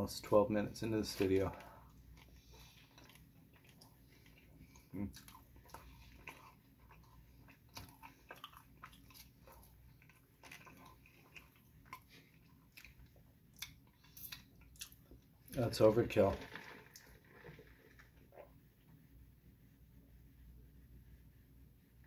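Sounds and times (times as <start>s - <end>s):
wet chewing mouth smacks: 2.1s - 15.3s.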